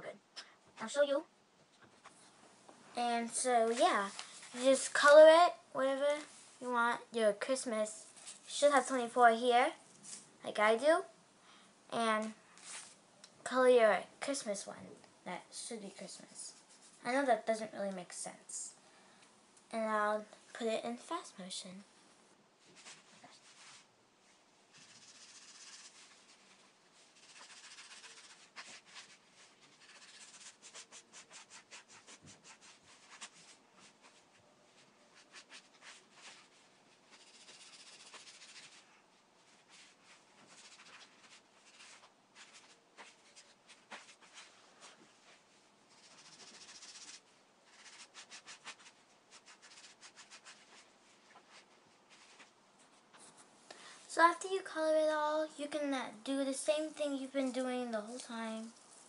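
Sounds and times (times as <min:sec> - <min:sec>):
marker scribbling on paper: 0:22.7 - 0:23.8, 0:24.7 - 0:34.2, 0:34.8 - 0:38.9, 0:39.5 - 0:52.5.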